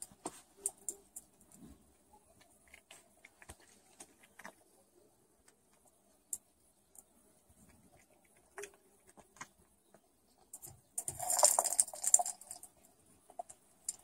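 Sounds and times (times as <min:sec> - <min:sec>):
plastic ball rattling and scraping: 0:10.4 - 0:14.0.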